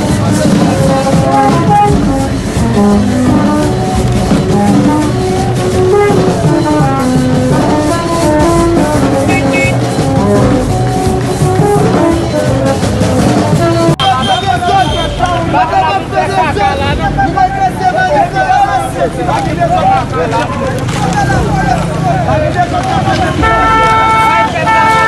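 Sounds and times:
loud music with drums and horns: 0:00.0 - 0:25.0.

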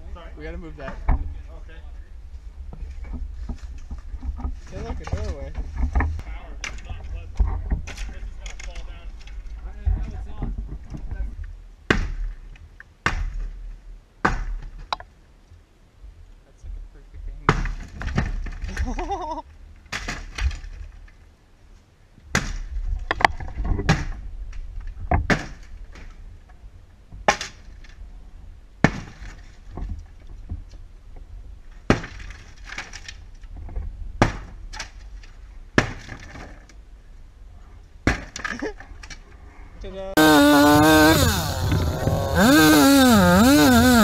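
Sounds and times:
wooden boards splintering: 0:40.2 - 0:44.0.

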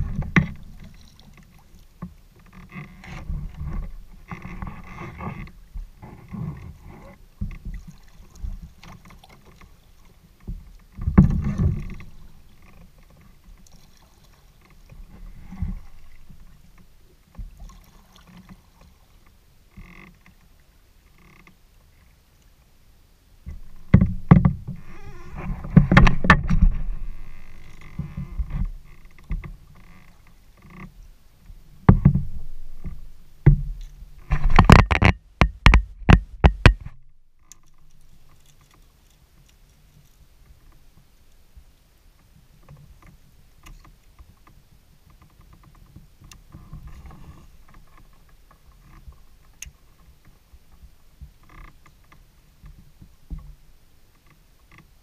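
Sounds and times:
paddle splashing through water: 0:00.0 - 0:21.1
knocks against plastic hull: 0:23.5 - 0:24.8, 0:25.7 - 0:26.9, 0:31.8 - 0:37.0
sharp clicks and knocks: 0:23.5 - 0:29.6, 0:31.8 - 0:40.8.

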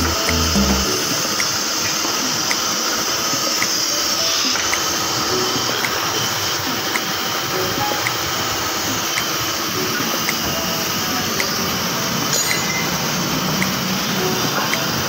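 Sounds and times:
workshop background noise: 0:04.5 - 0:15.0.

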